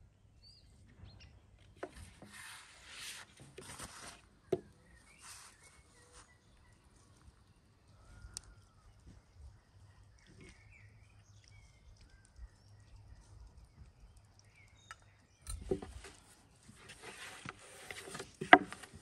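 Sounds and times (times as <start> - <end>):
faint bird chirps: 4.1 - 17.2.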